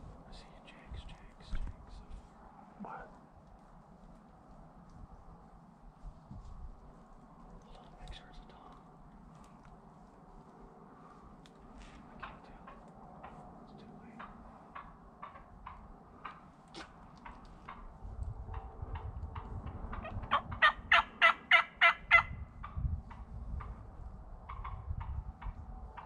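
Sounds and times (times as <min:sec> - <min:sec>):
faint chirps and clicks: 0:03.1 - 0:05.6, 0:07.0 - 0:10.6, 0:11.4 - 0:20.0
turkey yelping: 0:19.9 - 0:22.4.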